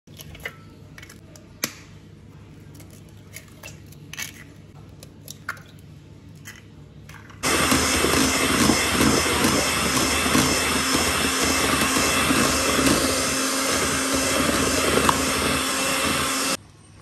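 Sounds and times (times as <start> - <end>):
electric hand mixer whirring: 7.4 - 16.6.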